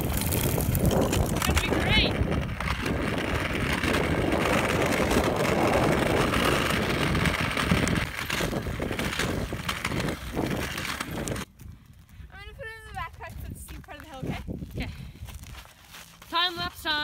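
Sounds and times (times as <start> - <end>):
wind rushing on microphone: 0.0 - 15.5.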